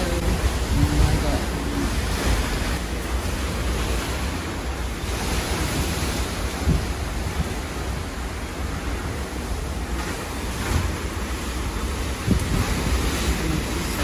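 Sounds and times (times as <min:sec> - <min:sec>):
wind gusts buffeting microphone: 0:00.0 - 0:14.0
wind rushing through screen door: 0:00.0 - 0:14.0.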